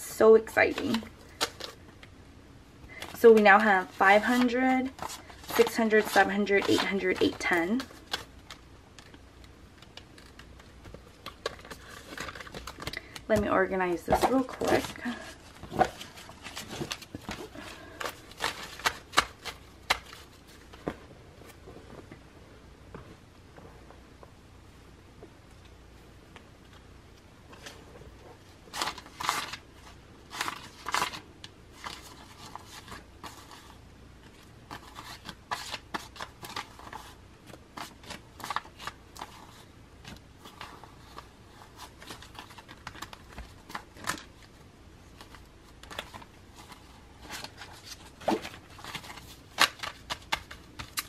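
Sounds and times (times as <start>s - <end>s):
paper banknotes rustling: 2.9s - 9.2s, 14.0s - 20.9s.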